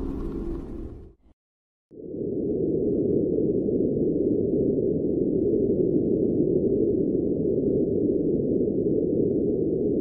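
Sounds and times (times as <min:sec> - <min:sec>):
low muffled rushing drone: 0:00.0 - 0:01.2.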